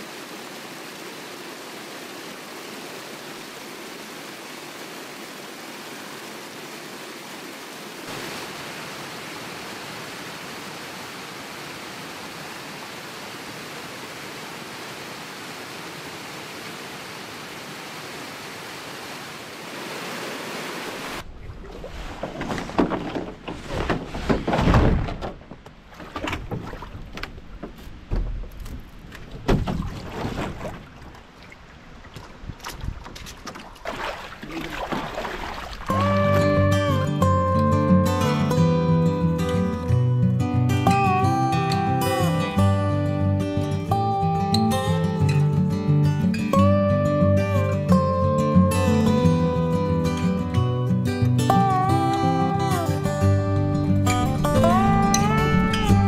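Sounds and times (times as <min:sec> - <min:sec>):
small waterfall rushing over rocks: 0:00.0 - 0:21.3
canoe paddle splashes: 0:21.2 - 0:36.6.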